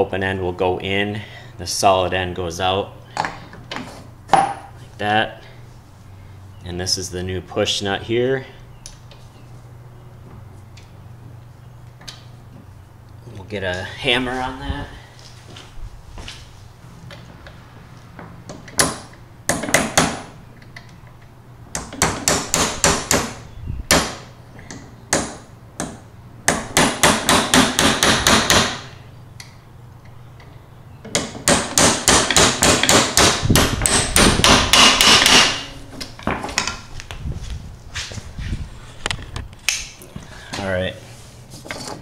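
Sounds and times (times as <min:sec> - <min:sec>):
hammer striking metal: 0:31.4 - 0:35.8.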